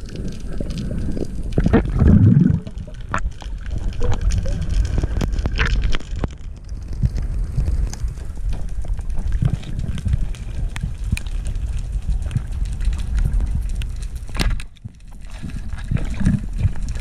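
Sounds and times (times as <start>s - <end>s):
low rumble of moving water: 0.0s - 17.0s
sharp clicks and knocks: 14.3s - 15.2s.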